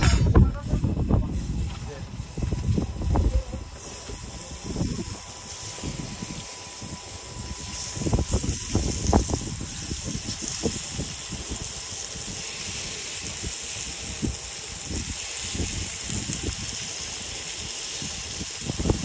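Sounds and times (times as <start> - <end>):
low bumps and rumbling: 0.0 - 5.1
fish sizzling on a grill: 0.0 - 19.0.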